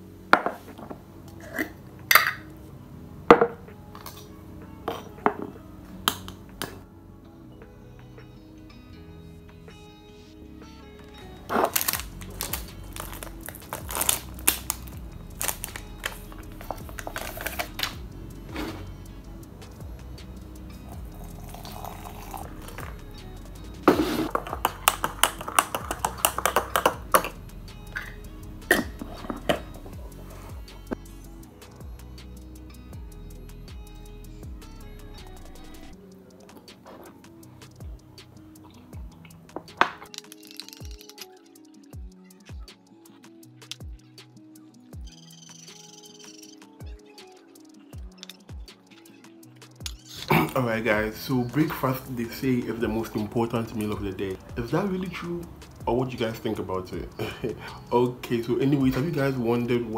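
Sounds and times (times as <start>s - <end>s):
faint background music: 0.0s - 59.9s
teaspoon clinking against ceramic mug: 21.4s - 23.0s, 24.3s - 27.4s.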